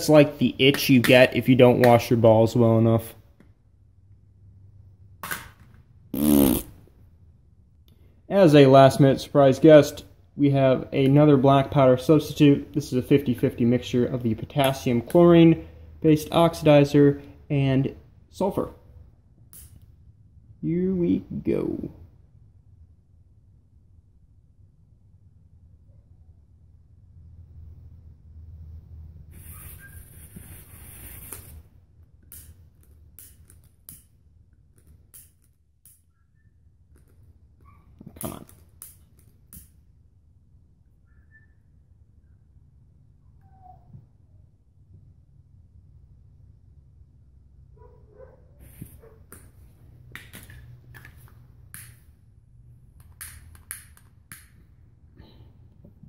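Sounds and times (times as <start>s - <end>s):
low background hum: 0.0s - 56.0s.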